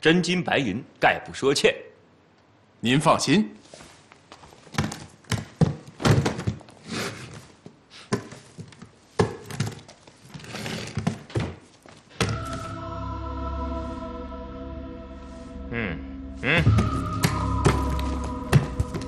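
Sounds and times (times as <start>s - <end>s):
music: 12.2s - 19.0s.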